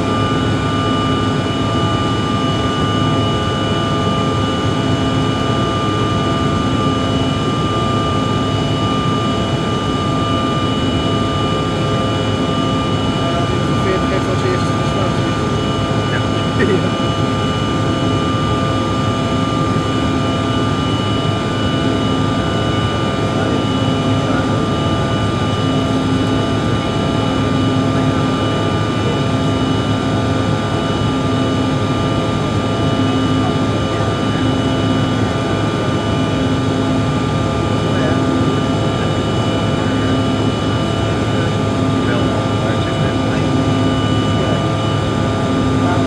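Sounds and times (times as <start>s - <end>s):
jet engine whine: 0.0s - 46.0s
pulsing low drone: 0.0s - 46.0s.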